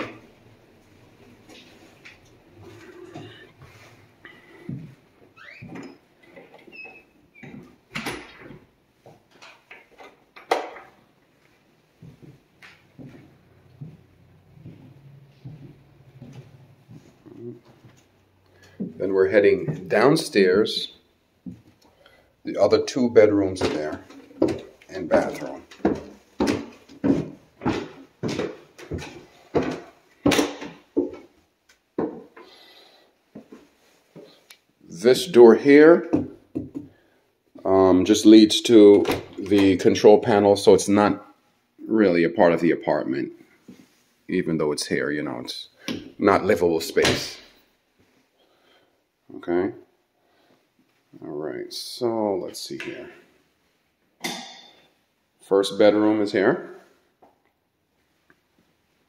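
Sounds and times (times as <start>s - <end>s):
footsteps on hardwood floor: 0.8s - 7.8s, 11.4s - 20.0s, 21.4s - 21.8s, 23.5s - 31.4s, 32.0s - 32.6s, 33.3s - 34.4s
floor creaking: 1.2s - 20.1s, 23.1s - 31.4s, 32.0s - 34.5s.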